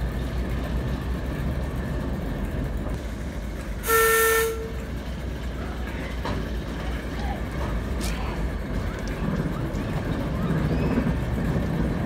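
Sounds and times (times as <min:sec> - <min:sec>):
diesel engine rumbling: 0:00.0 - 0:12.0
locomotive horn blast: 0:03.8 - 0:04.9.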